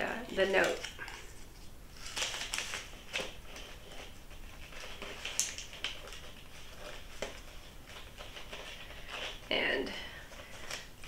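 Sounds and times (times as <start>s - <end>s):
twine rustling: 0.0s - 11.0s.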